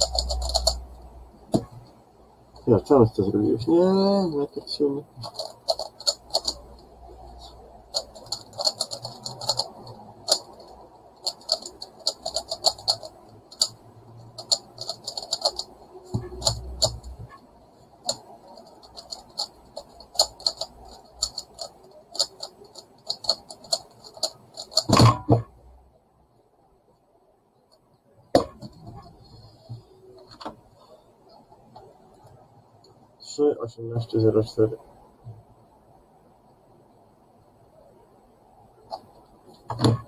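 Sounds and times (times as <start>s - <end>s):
plastic puzzle faces clicking: 0.0s - 1.9s, 5.1s - 17.4s, 18.0s - 25.5s.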